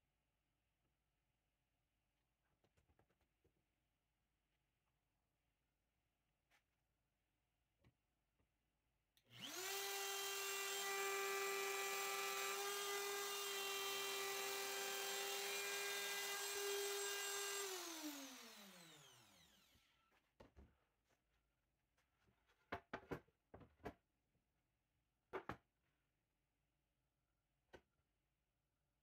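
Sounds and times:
router motor whining: 9.3 - 19.9.

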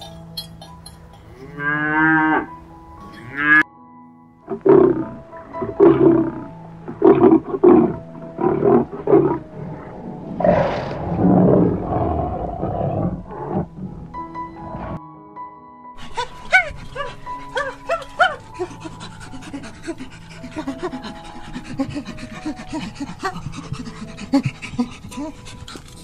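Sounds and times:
soft background music: 0.0 - 26.0
cow mooing: 1.3 - 3.6, 4.5 - 15.0
lioness grunting calls: 4.5 - 15.0
lioness roaring: 4.5 - 15.0.

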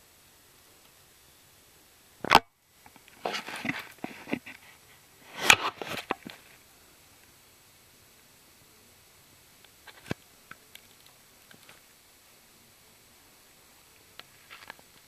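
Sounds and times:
rustling and clicking: 2.2 - 4.8, 9.6 - 12.0, 14.0 - 15.0.

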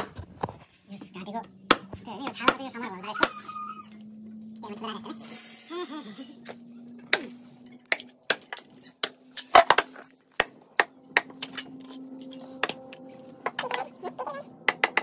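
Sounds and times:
knife chopping through bones: 1.6 - 3.3, 7.0 - 13.6.

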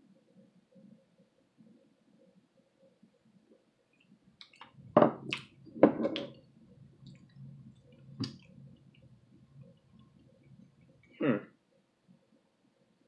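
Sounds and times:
mouth smacks: 4.4 - 5.6
wet chewing sounds: 4.4 - 11.1.

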